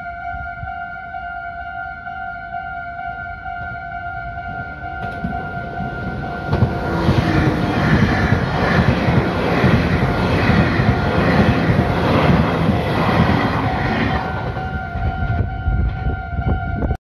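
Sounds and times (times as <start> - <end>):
crossing warning bell ringing: 0.0 - 17.0
train wheels rumbling on rails: 4.3 - 17.0.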